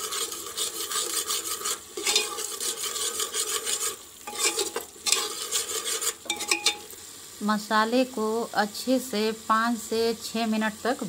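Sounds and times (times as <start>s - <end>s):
steel spoon scraping a pot: 0.0s - 7.0s
masala sizzling in a pot: 0.0s - 11.0s.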